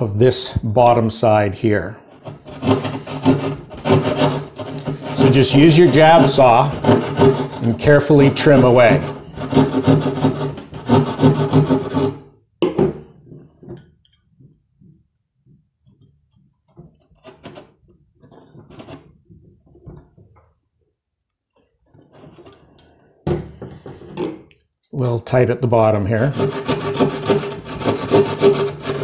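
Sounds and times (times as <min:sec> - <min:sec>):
jab saw rasping through drywall: 0:02.0 - 0:12.4, 0:16.9 - 0:19.5, 0:26.2 - 0:29.0
metal box scraping and tapping: 0:02.2 - 0:09.1.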